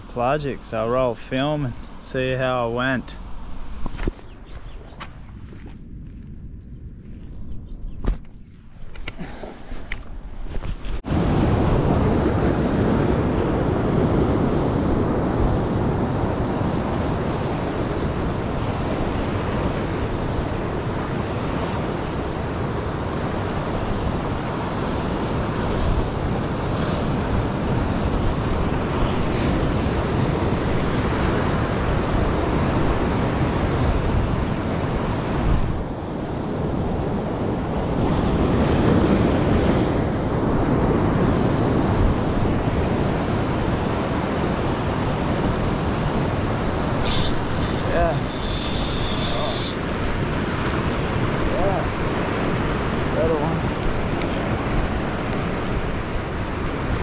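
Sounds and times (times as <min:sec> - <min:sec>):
wind buffeting microphone: 0:03.3 - 0:57.0
surf breaking on rocks: 0:40.7 - 0:57.0.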